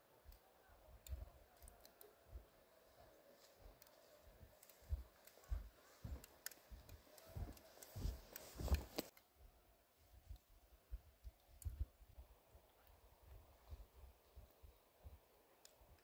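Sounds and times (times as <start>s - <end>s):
footsteps crunching in snow: 3.4s - 9.1s.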